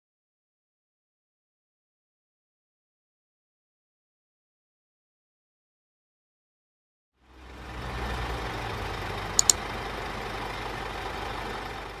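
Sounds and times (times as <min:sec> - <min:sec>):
fire engine diesel idling: 0:07.2 - 0:12.0
sharp clicks: 0:09.4 - 0:09.6.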